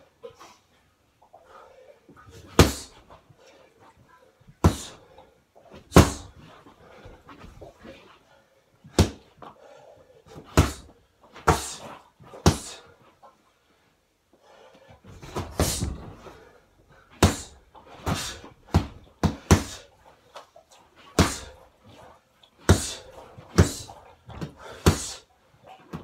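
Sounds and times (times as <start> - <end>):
punches thudding on punching bag: 2.6 - 2.9, 5.9 - 6.3, 9.0 - 9.3, 10.5 - 10.9, 12.4 - 12.8, 17.1 - 19.9, 21.2 - 21.6, 22.7 - 23.0, 23.6 - 25.2.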